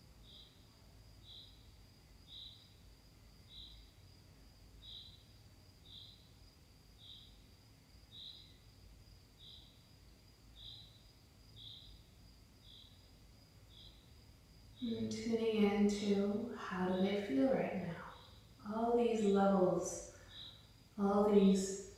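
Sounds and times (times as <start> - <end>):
faint steady high tone: 14.8 - 21.9.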